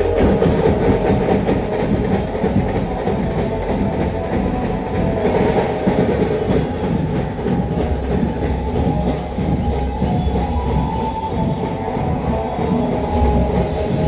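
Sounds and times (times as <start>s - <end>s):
drumming: 0.0s - 14.0s
procession music: 0.0s - 14.0s.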